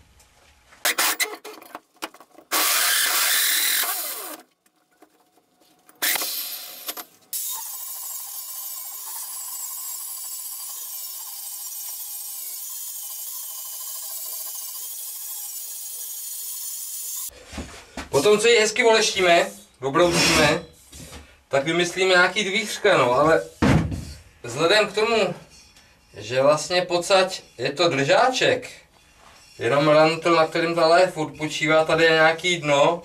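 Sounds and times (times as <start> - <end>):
angle grinder grinding metal: 0.9 - 1.6, 2.5 - 4.4, 6.0 - 17.3.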